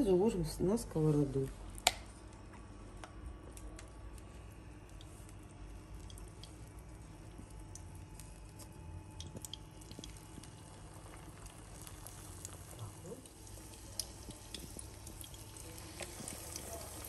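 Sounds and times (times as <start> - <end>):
low steady hum: 0.0 - 17.0
hot oil crackling in a pan: 3.4 - 17.0.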